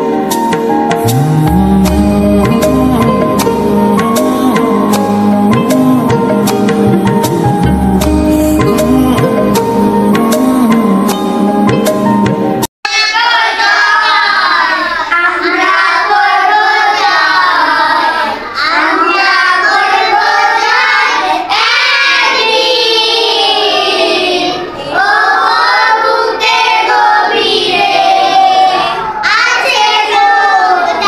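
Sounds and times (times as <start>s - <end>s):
children singing together: 12.9s - 31.0s.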